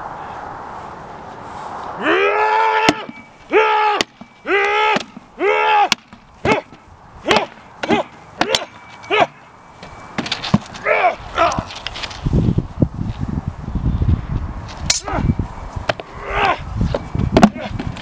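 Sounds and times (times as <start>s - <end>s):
weapons striking wooden shield: 2.9s - 3.3s, 4.0s - 5.3s, 5.9s - 9.4s, 17.4s - 17.7s.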